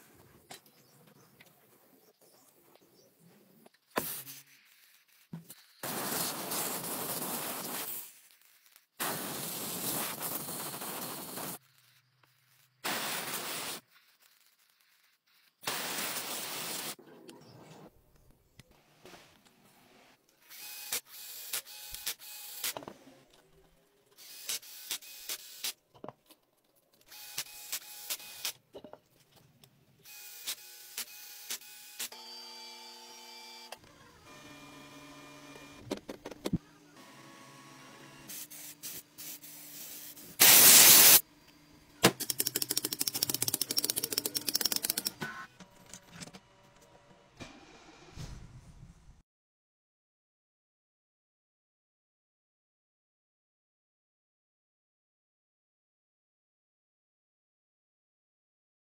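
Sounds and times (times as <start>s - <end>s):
pressurised spray hissing: 9.0s - 11.6s, 38.3s - 41.2s
regular clicking of drill: 42.2s - 45.2s.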